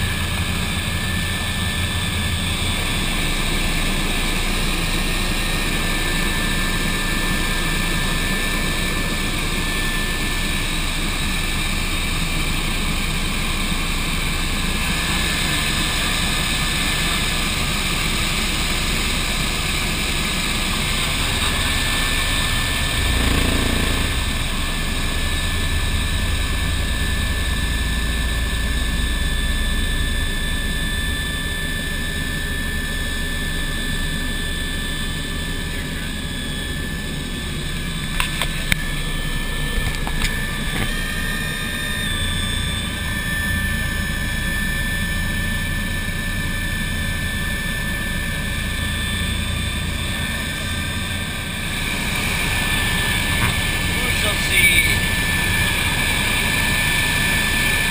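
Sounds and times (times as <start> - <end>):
helicopter turbine whine: 0.0 - 57.9
rotor and air noise: 0.0 - 57.9.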